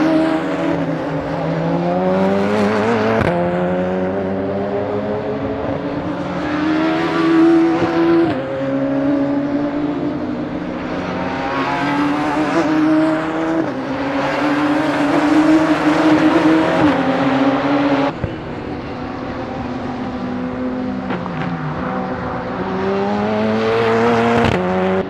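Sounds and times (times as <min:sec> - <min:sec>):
race car engines revving past: 0:00.0 - 0:25.0.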